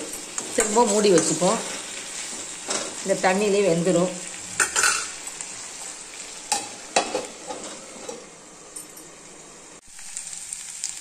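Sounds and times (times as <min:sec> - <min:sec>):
food sizzling in a pan: 0:00.0 - 0:11.0
metal clinking on pan: 0:04.6 - 0:05.1.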